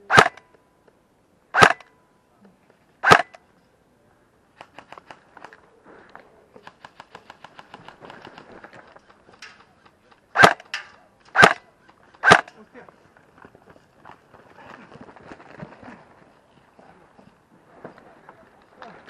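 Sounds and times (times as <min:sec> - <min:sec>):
airsoft gun shots: 0:00.1 - 0:00.4, 0:01.6 - 0:01.9, 0:03.0 - 0:03.4, 0:10.4 - 0:11.6, 0:12.2 - 0:12.5
faint rapid clicking: 0:04.6 - 0:12.2.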